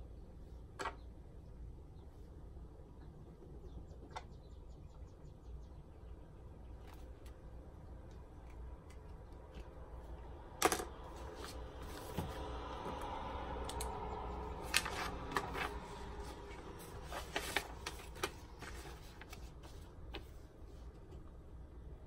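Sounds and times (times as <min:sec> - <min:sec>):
pages turning: 0:10.6 - 0:12.6, 0:14.6 - 0:20.9
notebook set down on desk: 0:11.8 - 0:12.5.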